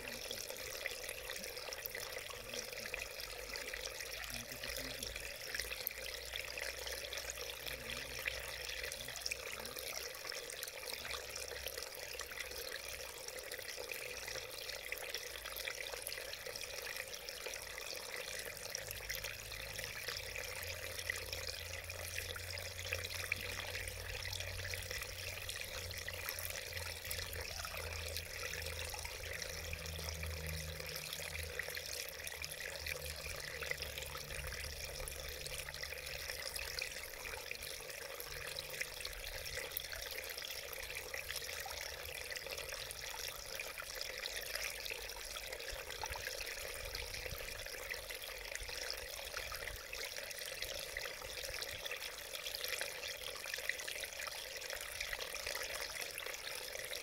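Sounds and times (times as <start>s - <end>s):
stream babbling over stones: 0.0s - 57.0s.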